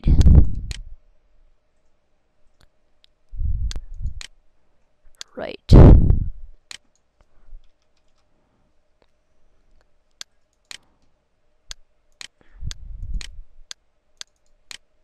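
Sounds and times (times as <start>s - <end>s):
low rumble: 0.0s - 1.0s, 3.3s - 4.3s, 5.7s - 6.6s, 12.6s - 13.7s
computer mouse clicking: 3.7s - 4.4s, 6.6s - 8.3s, 9.8s - 11.1s, 12.1s - 14.9s.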